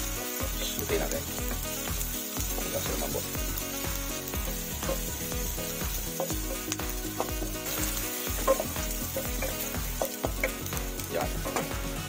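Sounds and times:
food sizzling in hot oil: 0.0 - 12.0
spatula scraping and tapping pan: 6.0 - 10.7.

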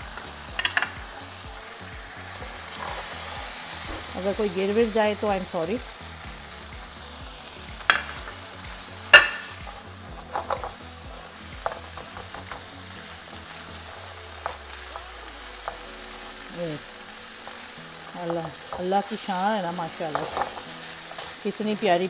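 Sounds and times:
vegetables sizzling in a pan: 0.0 - 22.0
spoon knocking against pan: 0.5 - 1.0, 7.9 - 8.4, 9.1 - 9.6.

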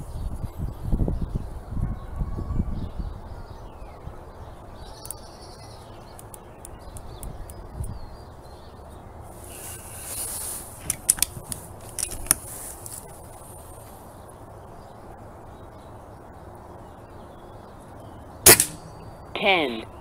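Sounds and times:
air rifle sliding rasp: 9.4 - 13.0
air rifle metallic clicks: 10.8 - 12.5, 18.5 - 19.2.

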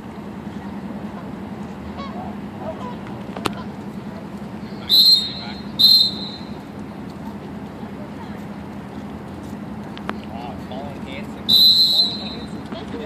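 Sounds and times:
steady low hum: 0.0 - 13.0
shrill signal blasts: 4.8 - 6.6, 11.5 - 12.6.

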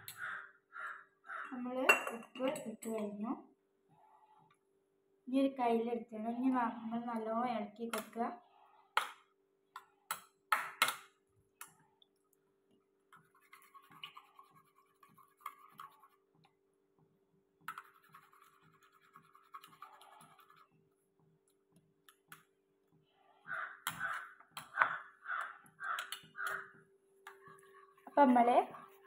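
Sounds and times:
spoon beating eggs in bowl: 13.1 - 22.4.

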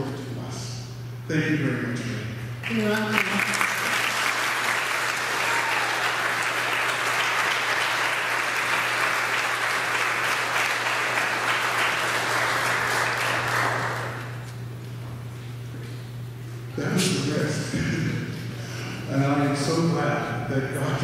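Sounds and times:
congregation applauding: 2.6 - 14.6.

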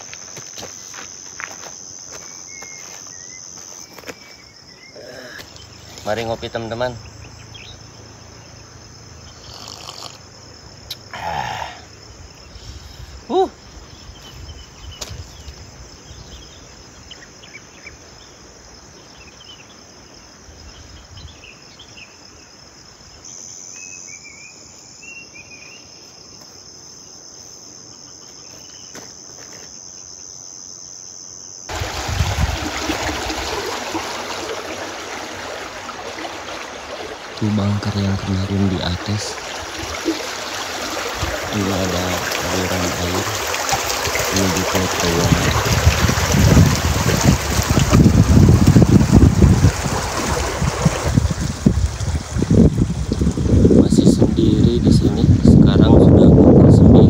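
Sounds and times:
insects buzzing: 0.0 - 57.0
water rushing down a channel: 31.7 - 54.3.

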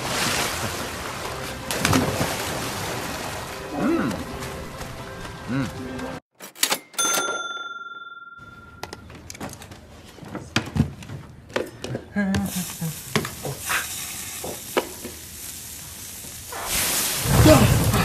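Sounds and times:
steady sizzle: 12.5 - 18.0.

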